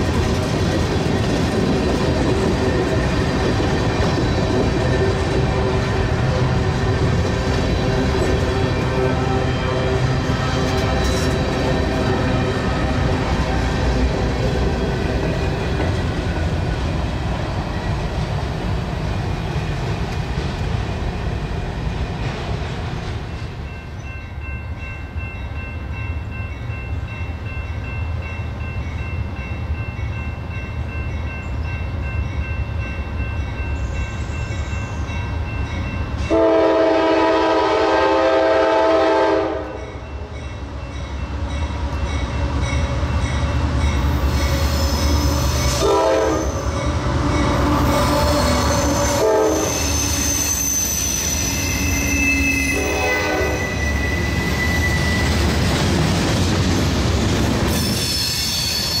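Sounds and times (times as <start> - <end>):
diesel train rumbling: 0.0 - 59.0
locomotive air horn: 36.3 - 39.8, 45.7 - 50.2, 51.5 - 54.0.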